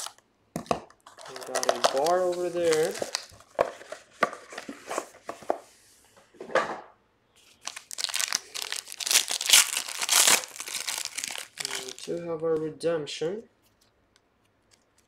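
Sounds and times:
foil wrapper rustling: 1.0s - 3.6s, 7.6s - 12.1s
foil crinkling as torn open: 1.1s - 3.4s, 7.6s - 12.1s.

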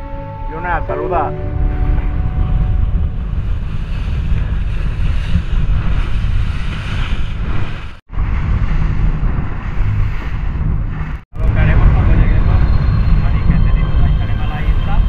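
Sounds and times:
sea water rushing: 0.0s - 11.2s
wind buffeting microphone: 1.2s - 15.0s.

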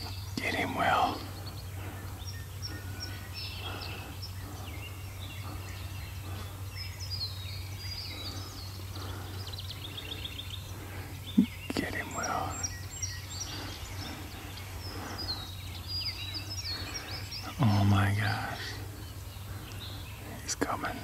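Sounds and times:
birds chirping and trilling: 0.0s - 21.0s
steady low hum: 0.0s - 21.0s.

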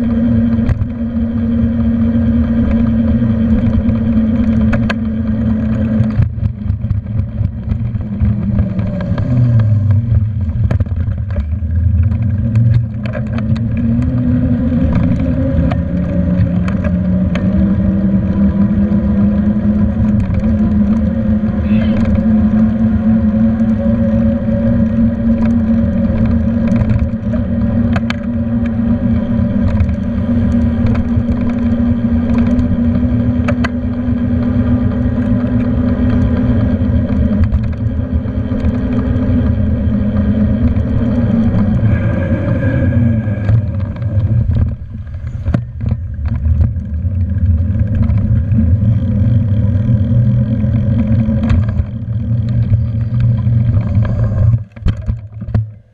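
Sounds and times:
bicycle riding hum: 0.0s - 55.9s
road rumble: 0.0s - 55.9s
wind on the microphone: 2.6s - 49.0s.

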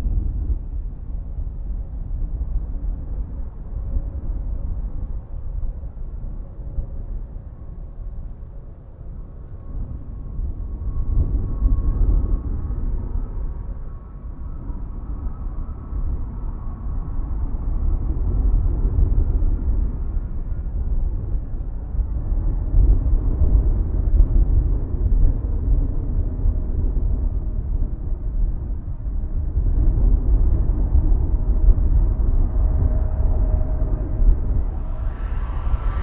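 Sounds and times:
jet engines rumbling with whine: 0.0s - 36.0s.

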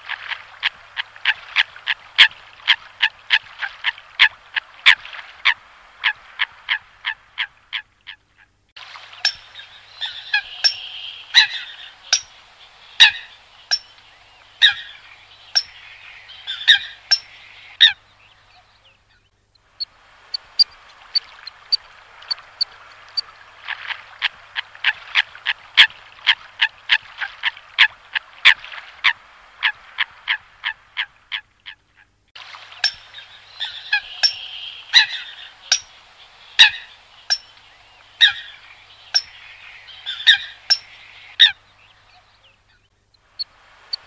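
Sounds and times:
coots honking calls: 9.2s - 13.8s, 33.6s - 35.9s.

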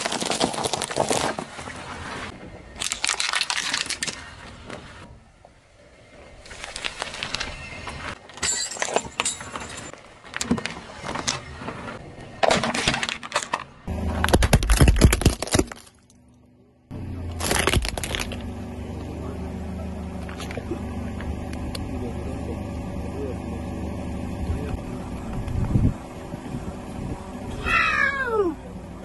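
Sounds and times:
car tyre crushing objects: 0.0s - 5.1s, 6.2s - 16.3s, 17.3s - 18.6s
plastic toy cracking: 14.2s - 16.1s, 17.4s - 18.4s
low engine hum: 15.9s - 29.0s.

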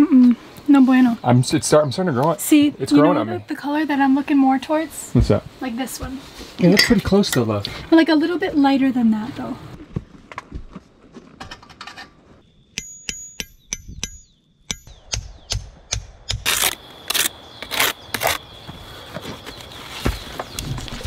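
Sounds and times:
hammer striking metal: 12.8s - 16.5s.

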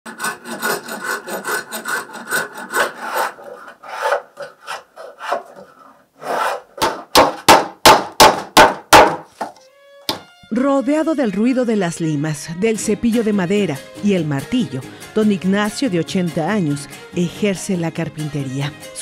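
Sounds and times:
hand tools rasping on wood: 0.1s - 7.6s.

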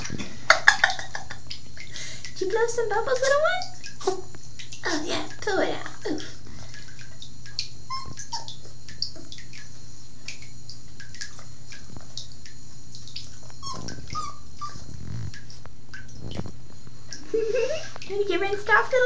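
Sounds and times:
tap trickling into tub: 0.0s - 19.0s
puppy whimpering: 7.9s - 8.6s, 13.6s - 15.3s.

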